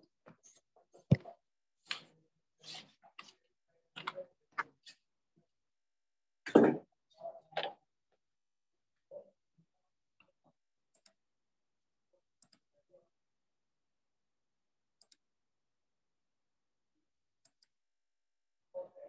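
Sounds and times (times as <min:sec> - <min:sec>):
faint clicks and taps: 0:00.2 - 0:02.2, 0:02.8 - 0:04.9.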